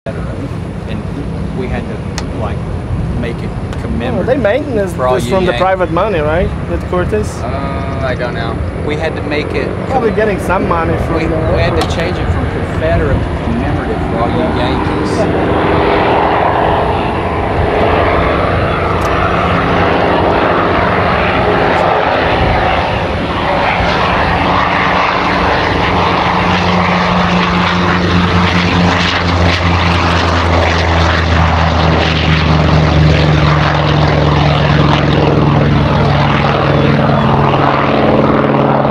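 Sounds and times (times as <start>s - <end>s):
propeller aircraft engine drone: 0.1s - 38.9s.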